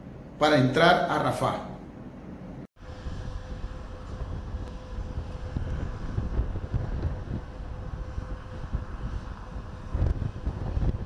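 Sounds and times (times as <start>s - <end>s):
faint steady hum: 0.0s - 11.0s
wind buffeting microphone: 2.8s - 11.0s.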